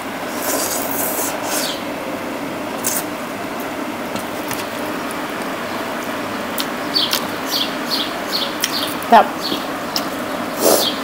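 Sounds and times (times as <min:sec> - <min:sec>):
electric fan hum: 0:00.0 - 0:11.0
slurping noodles: 0:00.3 - 0:01.7.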